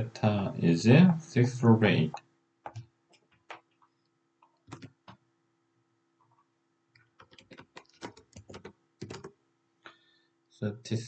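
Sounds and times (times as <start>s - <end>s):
computer keyboard clicking: 4.4s - 5.2s, 7.0s - 9.4s.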